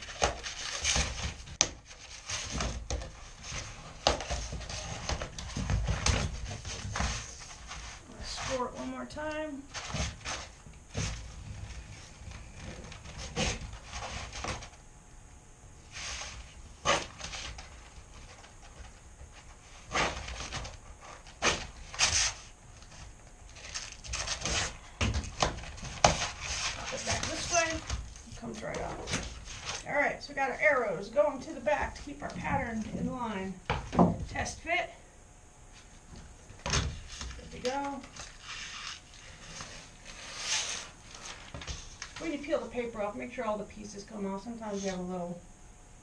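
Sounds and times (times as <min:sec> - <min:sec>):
plank rustling and handling: 0:15.9 - 0:29.9.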